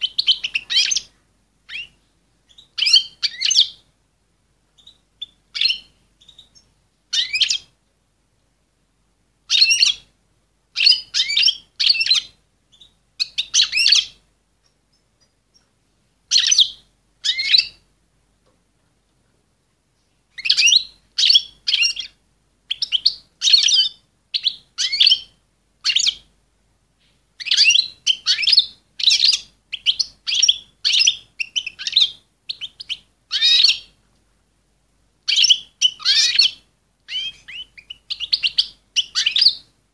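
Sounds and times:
goldfinch twittering chirps: 0.0 - 1.1, 1.7 - 3.8, 4.8 - 7.6, 9.5 - 10.0, 10.8 - 14.2, 16.3 - 17.8, 20.4 - 26.2, 27.4 - 33.9, 35.3 - 39.6.

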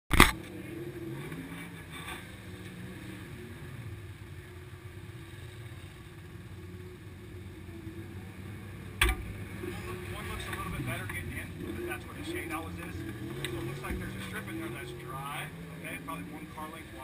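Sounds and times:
engines idling: 0.2 - 17.0
sharp thump: 9.0 - 9.3.

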